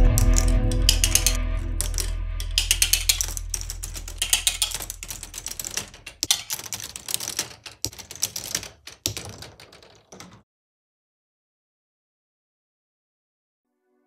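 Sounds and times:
plastic balls clattering on track: 0:00.0 - 0:10.4.

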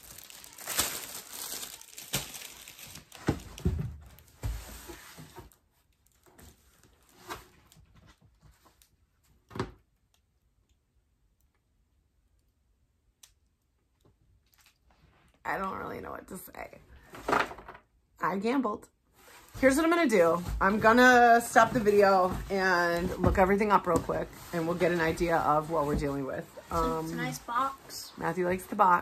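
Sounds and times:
packaging rustling and tearing: 0:00.0 - 0:04.4.

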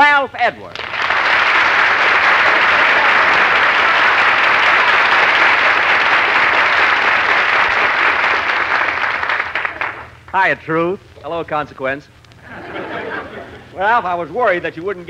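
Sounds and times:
studio audience applauding: 0:00.7 - 0:10.4.

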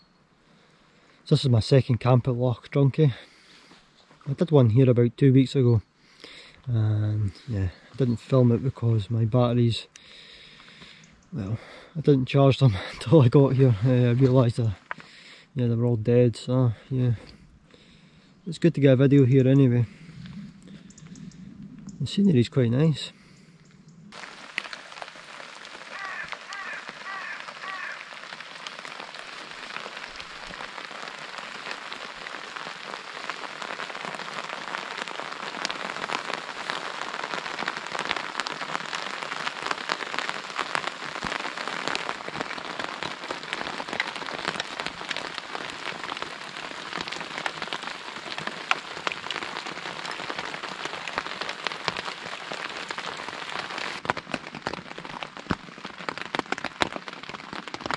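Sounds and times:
steady rain falling: 0:00.0 - 0:57.9
raindrops tapping on tent fabric: 0:09.9 - 0:15.2, 0:19.5 - 0:22.0, 0:23.6 - 0:57.9.

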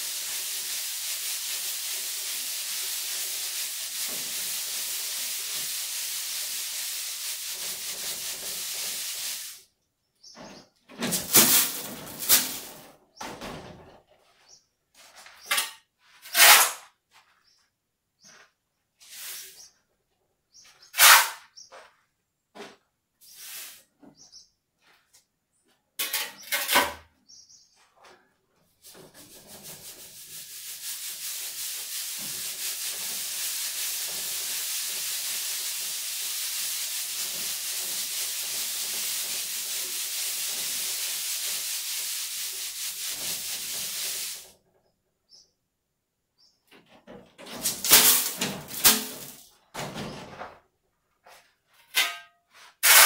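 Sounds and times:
sieve scraping: 0:00.0 - 0:09.6, 0:11.0 - 0:12.9, 0:28.8 - 0:44.5, 0:47.5 - 0:49.4, 0:51.9 - 0:53.0
sand sifting through a sieve: 0:00.0 - 0:09.7, 0:11.1 - 0:12.8, 0:19.0 - 0:19.8, 0:23.2 - 0:23.9, 0:28.8 - 0:44.5, 0:52.6 - 0:53.0.

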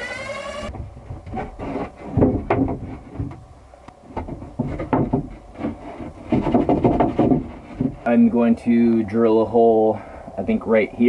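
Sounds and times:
wood knocking and scraping: 0:00.0 - 0:08.4.

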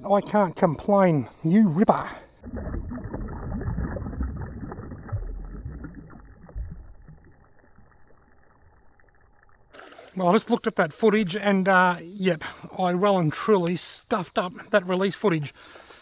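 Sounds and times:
river water sloshing against kayak: 0:09.7 - 0:10.4.

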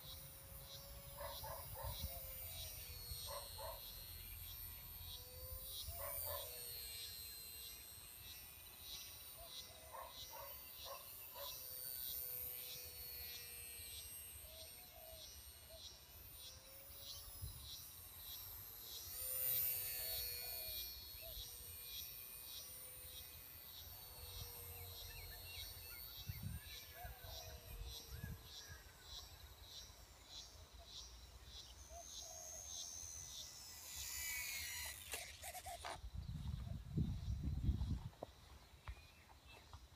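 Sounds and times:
model plane motor whine: 0:00.0 - 0:39.9.

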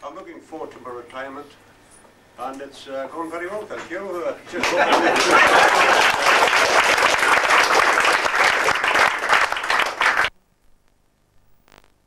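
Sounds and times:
audience applauding: 0:04.6 - 0:10.3.

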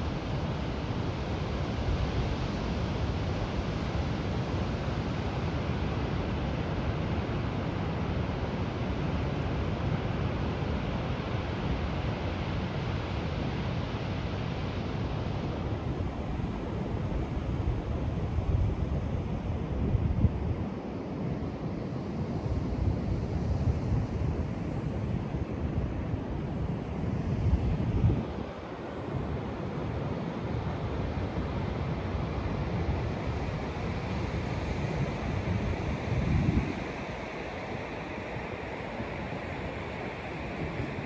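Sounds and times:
wind rumbling on microphone: 0:15.5 - 0:39.8
wind buffeting microphone: 0:35.0 - 0:37.1.

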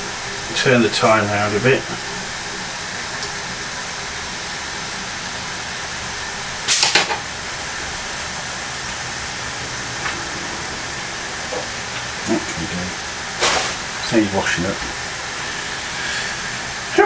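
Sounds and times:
wine sauce hissing and sizzling: 0:00.0 - 0:17.0
burst of noise: 0:04.6 - 0:17.0.

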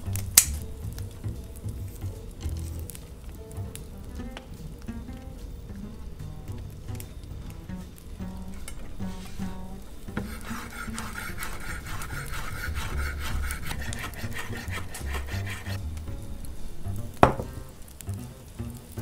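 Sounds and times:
background music: 0:00.0 - 0:19.0
knife chopping on wooden board: 0:10.1 - 0:15.8, 0:17.2 - 0:17.6.

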